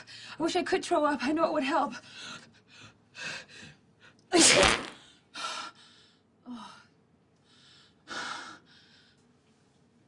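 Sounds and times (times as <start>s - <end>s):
woman sneezing: 4.3s - 5.0s.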